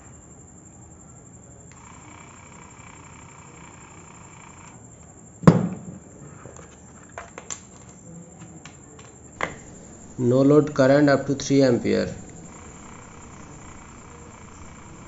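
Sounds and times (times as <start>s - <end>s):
light handling clicks: 8.6s - 15.0s.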